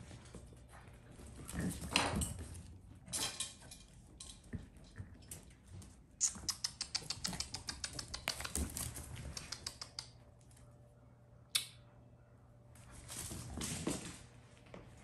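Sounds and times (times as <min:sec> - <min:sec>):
puppy claws tapping on tile: 0:01.8 - 0:10.6.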